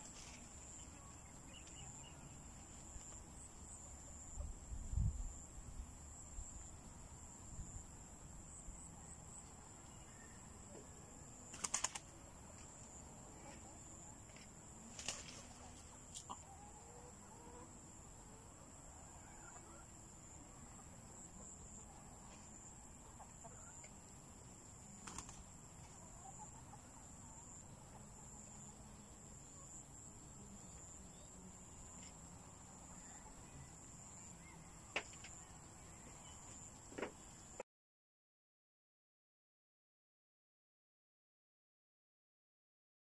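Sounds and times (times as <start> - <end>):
wings fluttering: 0.0 - 3.3, 11.5 - 12.9, 14.3 - 16.3, 24.9 - 25.9
chickens clucking softly: 12.2 - 29.8.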